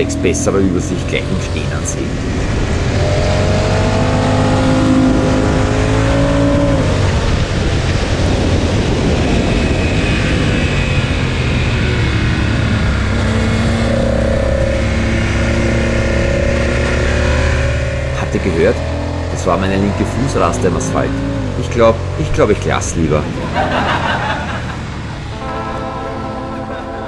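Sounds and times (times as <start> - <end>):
motorcycle engine: 0.0 - 27.0
wind rush on helmet microphone: 1.0 - 19.3.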